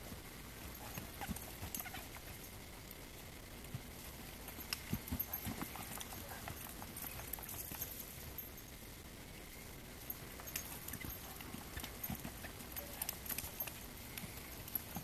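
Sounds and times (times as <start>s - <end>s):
steady hiss: 0.0s - 15.0s
hooves thudding in sand: 0.5s - 2.5s, 3.7s - 8.1s, 10.4s - 15.0s.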